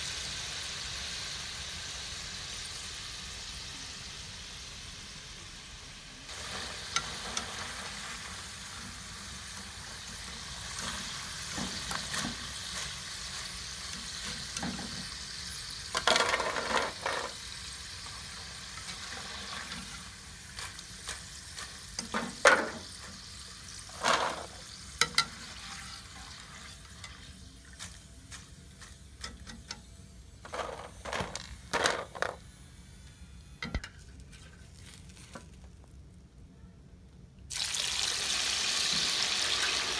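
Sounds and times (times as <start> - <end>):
fries sizzling in hot oil: 0.0 - 35.7, 37.5 - 39.9
wire skimmer scraping metal pan: 15.9 - 17.4, 23.9 - 27.2, 30.4 - 32.4.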